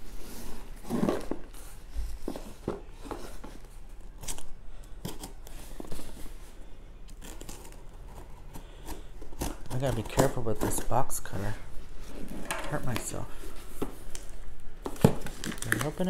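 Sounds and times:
cardboard box scraping: 0:00.0 - 0:03.6
plastic mailer rustling: 0:07.2 - 0:16.0.

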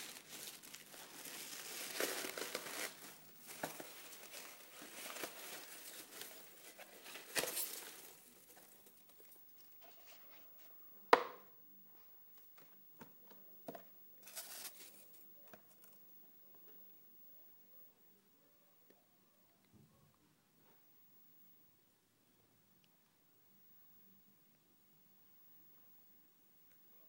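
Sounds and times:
paper packing rustling: 0:00.0 - 0:10.7, 0:13.7 - 0:16.0.

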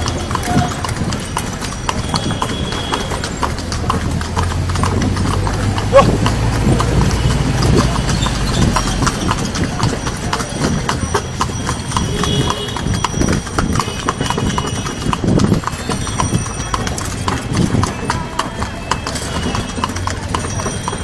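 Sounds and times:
hooves clip-clopping on road: 0:00.0 - 0:21.0.

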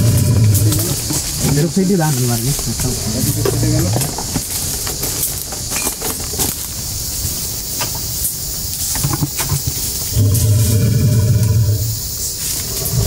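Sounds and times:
elephant deep low rumble: 0:00.0 - 0:04.4, 0:09.0 - 0:13.0
steady hiss: 0:00.0 - 0:13.0
handling clicks and rustles: 0:00.1 - 0:10.1.

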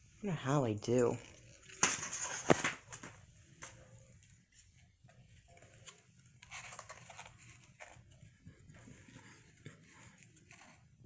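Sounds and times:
paper rustling: 0:01.3 - 0:11.0.

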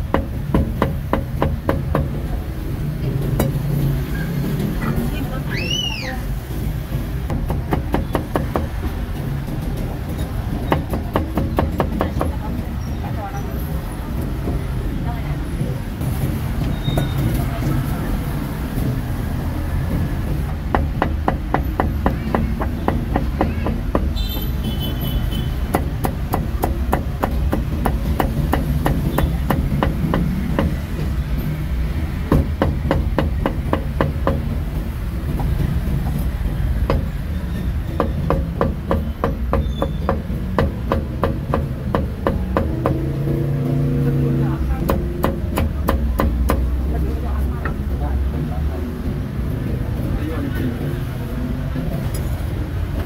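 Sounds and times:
cleaver chopping meat on block: 0:25.7 - 0:30.8.

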